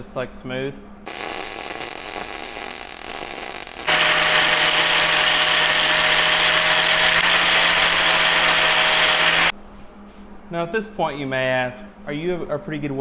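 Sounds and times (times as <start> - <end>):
angle grinder whining: 1.1 - 9.5
welding arc hissing and crackling: 1.1 - 9.5.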